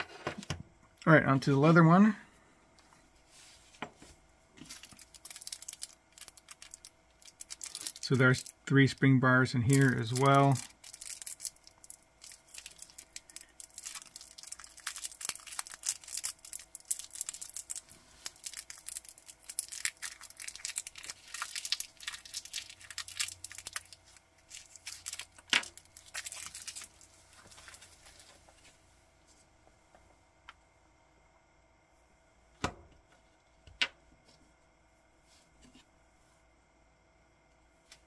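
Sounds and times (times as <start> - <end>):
plastic packaging crinkling and tearing: 4.6 - 8.6, 9.6 - 28.5.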